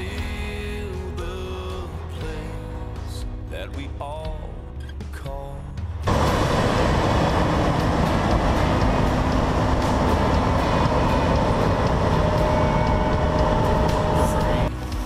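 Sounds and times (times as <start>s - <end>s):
combine harvester running: 6.1s - 14.7s
machine whines: 6.1s - 14.7s.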